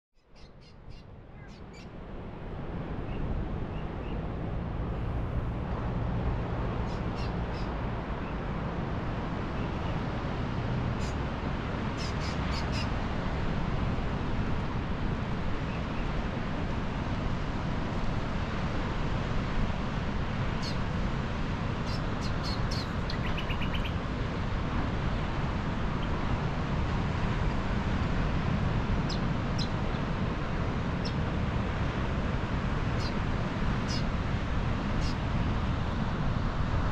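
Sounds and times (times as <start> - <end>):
small birds chirping: 0.2 - 1.9, 12.0 - 12.9, 21.9 - 24.0, 33.0 - 33.2, 33.8 - 34.0
wind through trees: 0.2 - 36.9
ocean surf: 1.2 - 36.9
bird trill: 21.9 - 23.9.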